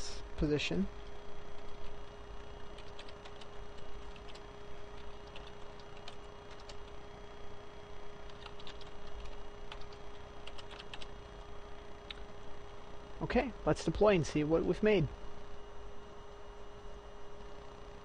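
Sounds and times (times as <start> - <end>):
steady low hum: 0.0 - 18.0
keyboard keystrokes: 8.3 - 11.1.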